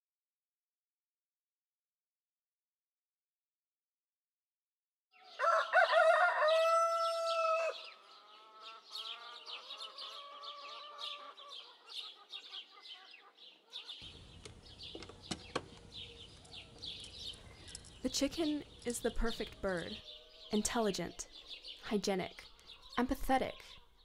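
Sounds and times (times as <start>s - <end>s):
rooster crowing: 5.2s - 11.6s
chickens chirping and clucking: 5.2s - 24.0s.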